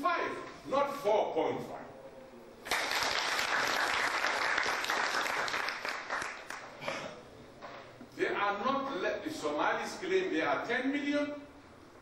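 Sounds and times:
audience applauding: 2.6s - 6.7s.

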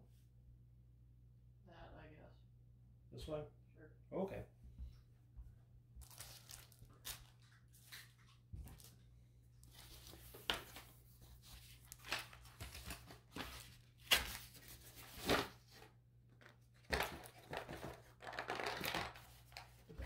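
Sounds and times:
paper rustling and crinkling: 6.0s - 20.0s.

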